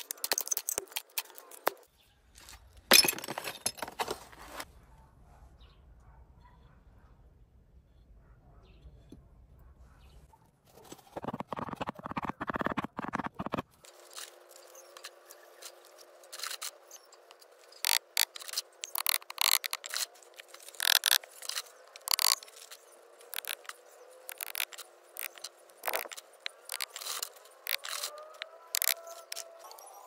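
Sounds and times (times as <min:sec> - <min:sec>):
ceramic tile pieces clacking: 0:11.2 - 0:13.6, 0:17.9 - 0:20.0, 0:24.3 - 0:29.5.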